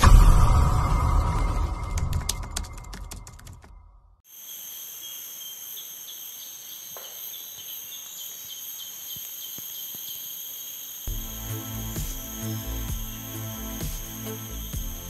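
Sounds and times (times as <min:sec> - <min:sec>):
forest insects droning: 0:04.2 - 0:15.0.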